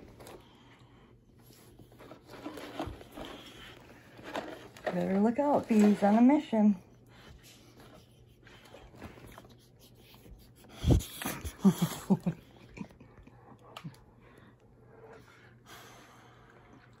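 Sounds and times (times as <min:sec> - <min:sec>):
dog sniffing and breathing: 0:06.8 - 0:12.5.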